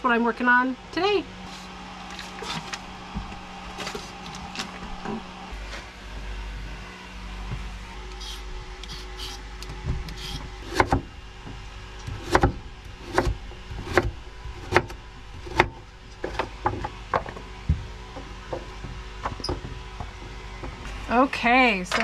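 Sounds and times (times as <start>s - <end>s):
peeler scraping a carrot: 8.1s - 9.4s
knife chopping on wooden board: 9.9s - 11.1s, 12.0s - 17.4s.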